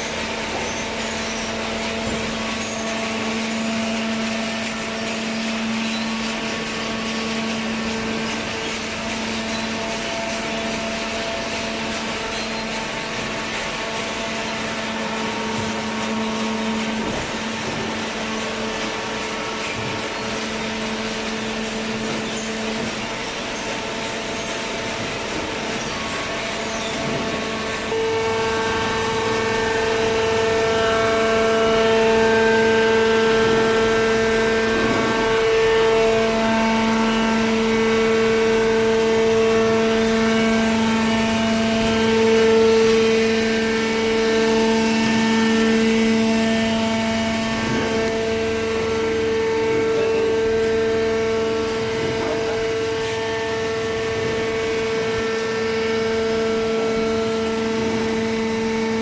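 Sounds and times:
baler machine droning hum: 0.0 - 59.0.

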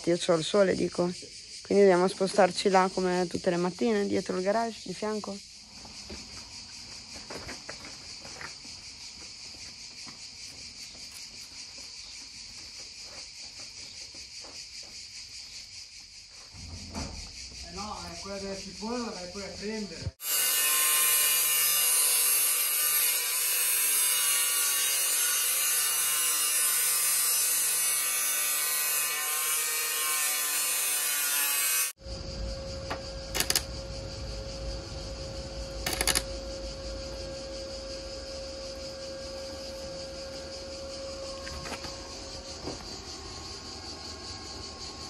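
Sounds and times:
power tool whining: 20.2 - 32.0, 35.5 - 45.0
steady hum with low rumble: 32.0 - 45.0.

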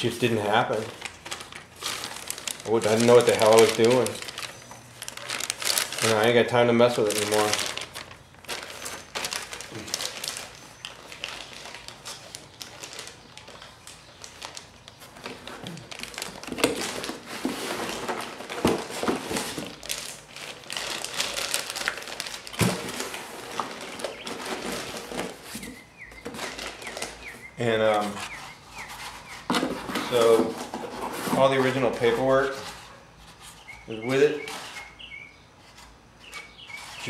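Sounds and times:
plastic wrapping crinkling: 0.0 - 37.0.

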